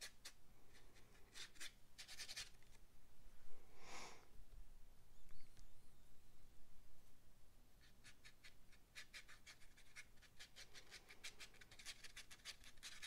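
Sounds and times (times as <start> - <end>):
paintbrush scratching on paper: 0.0 - 2.7, 7.8 - 13.0.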